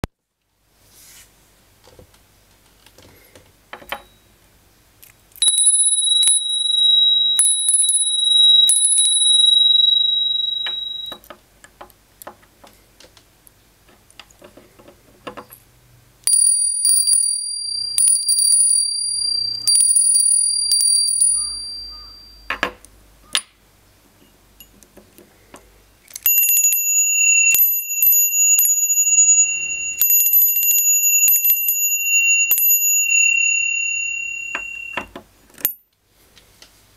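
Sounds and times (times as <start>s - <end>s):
brass bells ringing: 5.4s - 11.2s, 16.3s - 22.5s, 26.3s - 35.0s.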